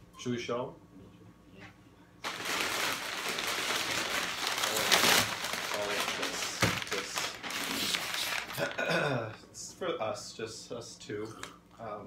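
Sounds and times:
paper bags rustling: 2.2 - 9.0.

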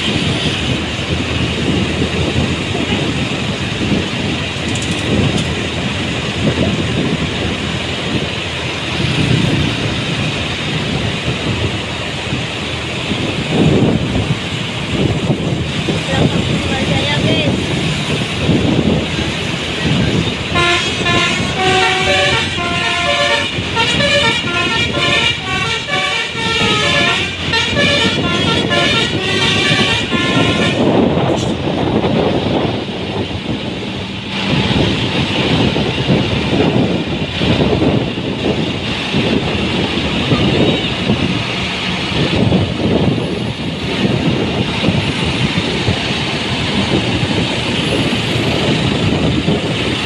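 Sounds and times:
bus engine: 0.0 - 50.0
road noise: 0.0 - 50.0
multi-tone air horn tune: 20.5 - 31.0.

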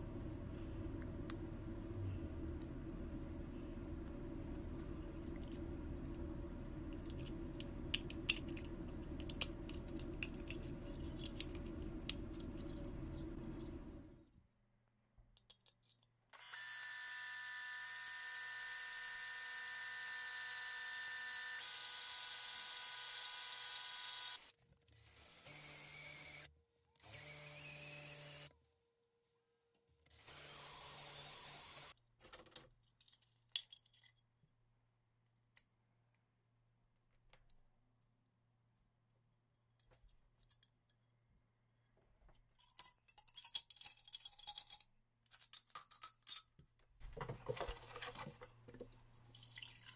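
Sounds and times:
metal parts rattling: 42.6 - 46.5.

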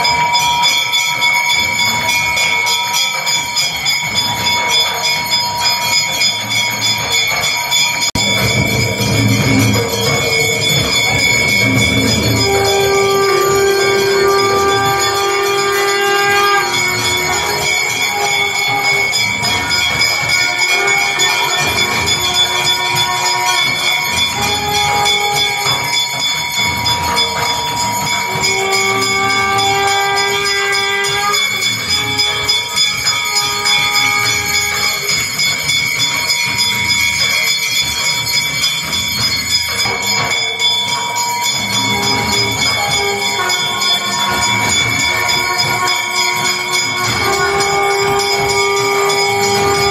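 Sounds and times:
temple bells ringing: 0.0 - 49.9
long horn-like tones: 8.1 - 37.5, 39.7 - 49.9.

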